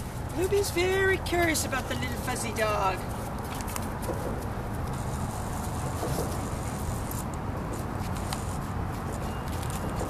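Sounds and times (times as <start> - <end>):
wind noise on microphone: 0.0 - 10.0.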